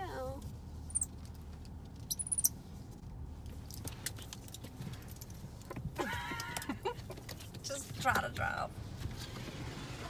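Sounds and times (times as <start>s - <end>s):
metal bits clicking and jingling: 0.9s - 1.4s, 2.0s - 2.6s
high thin squeaks: 2.1s - 2.6s.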